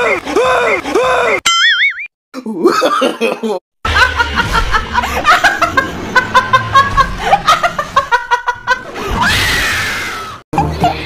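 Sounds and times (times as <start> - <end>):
person laughing: 2.4 - 9.2.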